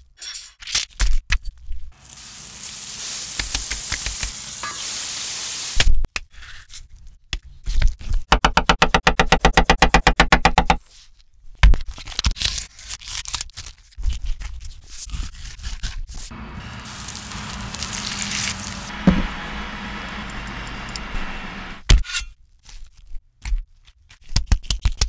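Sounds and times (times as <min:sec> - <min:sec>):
patty sizzling in skillet: 0:02.0 - 0:06.0, 0:16.3 - 0:21.8
knife chopping on wooden board: 0:18.9 - 0:19.4
loud knock: 0:19.0 - 0:19.3.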